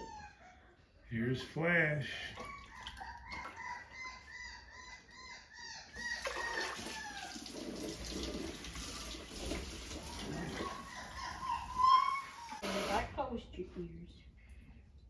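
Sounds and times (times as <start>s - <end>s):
puppy squealing: 0.0s - 0.8s, 2.4s - 7.5s, 10.1s - 12.6s
sink sprayer running water: 6.6s - 10.9s, 12.4s - 13.1s.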